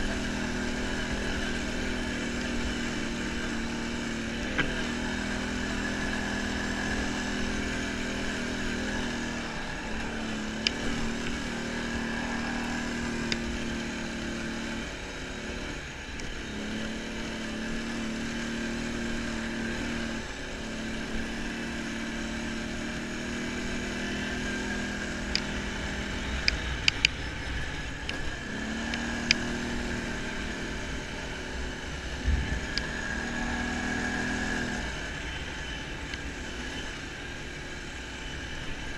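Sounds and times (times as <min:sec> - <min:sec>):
atv engine running: 0:00.0 - 0:38.9
sharp clicks and ticks: 0:25.2 - 0:29.8, 0:32.2 - 0:33.0.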